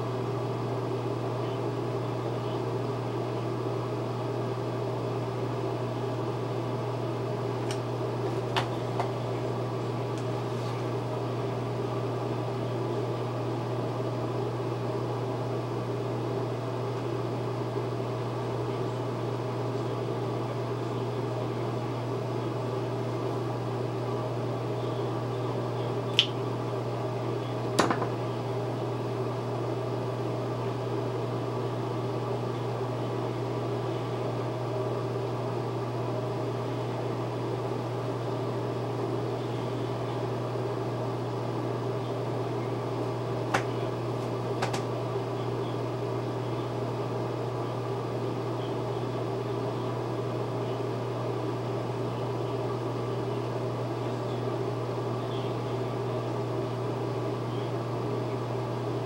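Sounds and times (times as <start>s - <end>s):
low mechanical hum: 0.0s - 59.0s.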